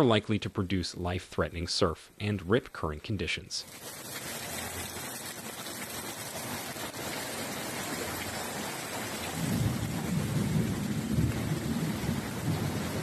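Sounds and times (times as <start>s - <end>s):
heavy rain and rushing floodwater: 3.6s - 13.0s.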